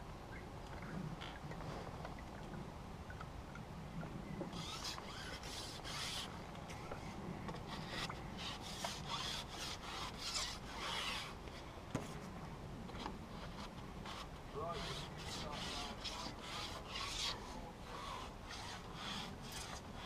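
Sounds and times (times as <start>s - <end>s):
fishing pole rubbing through hands: 4.5s - 11.7s, 13.3s - 20.0s.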